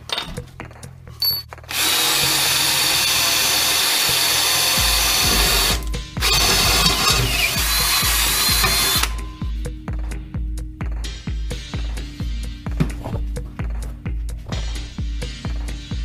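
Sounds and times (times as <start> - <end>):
cordless drill boring sheet metal: 1.2 - 9.2.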